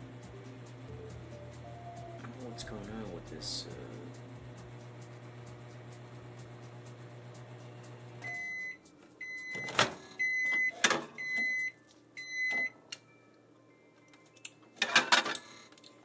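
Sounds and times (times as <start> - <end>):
microwave oven humming: 0.0 - 16.0
microwave beeps: 8.2 - 13.3.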